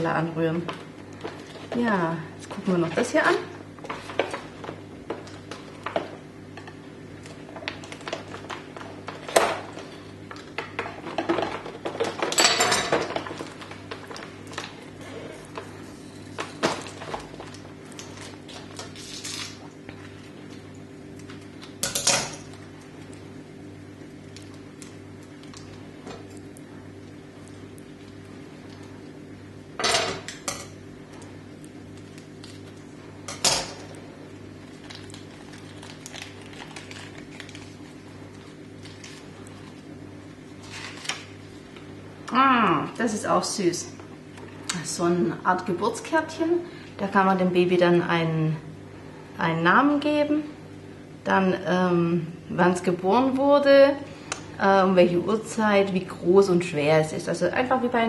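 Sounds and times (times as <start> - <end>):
steady low hum: 0.0 - 58.0
crinkling plastic and paper: 34.6 - 39.8, 40.6 - 41.3.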